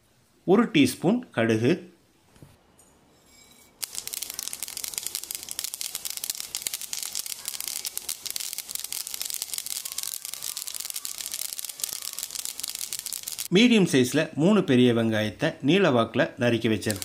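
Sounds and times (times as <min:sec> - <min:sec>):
seeds sizzling in hot oil: 0:03.8 - 0:13.5.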